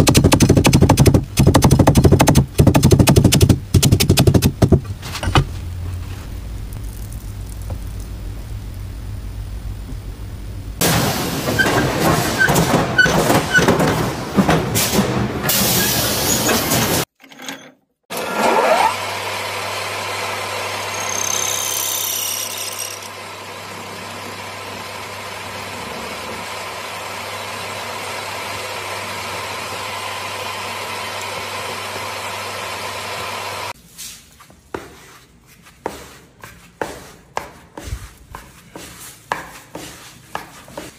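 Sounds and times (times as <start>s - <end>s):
steady low machine noise: 4.5s - 11.6s
lathe whine and hum: 5.2s - 12.2s, 18.1s - 33.8s.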